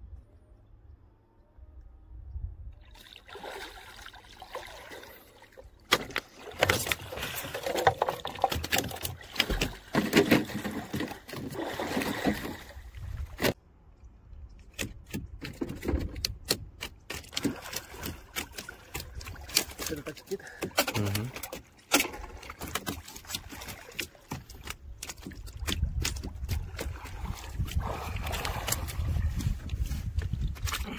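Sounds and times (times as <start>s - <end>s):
water splashing and sloshing: 2.7s - 30.9s.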